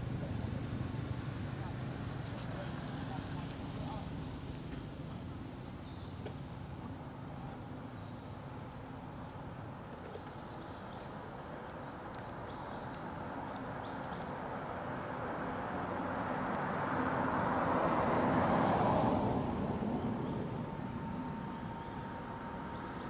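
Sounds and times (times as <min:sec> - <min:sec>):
vehicle passing: 0:14.6 - 0:23.0.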